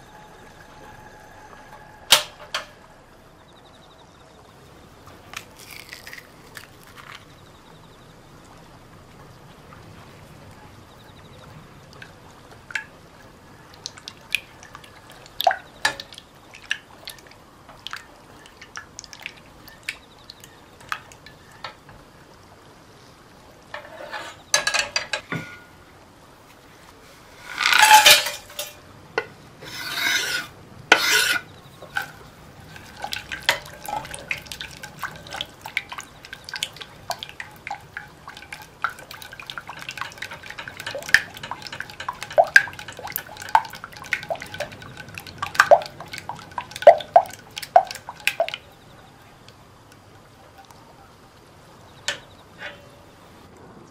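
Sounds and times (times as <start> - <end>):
spatula scraping a bowl: 23.8 - 24.5, 29.6 - 35.5
whisk ticking against glass bowl: 30.9 - 48.8.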